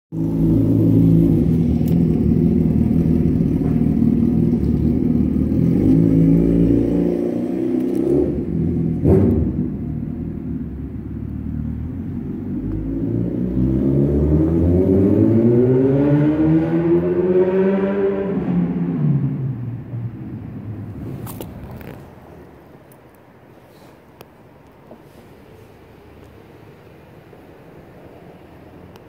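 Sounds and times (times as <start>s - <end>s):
vehicle engine revving: 0.2s - 10.4s, 11.5s - 19.6s.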